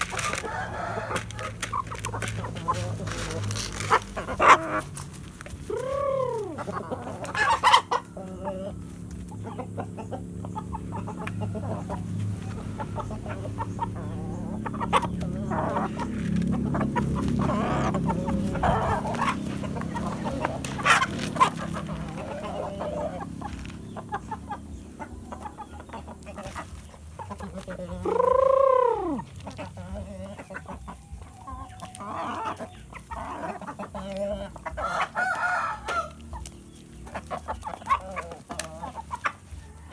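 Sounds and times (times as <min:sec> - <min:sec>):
chickens clucking: 0:00.0 - 0:39.9
rooster crow: 0:00.2 - 0:01.6, 0:34.7 - 0:36.2.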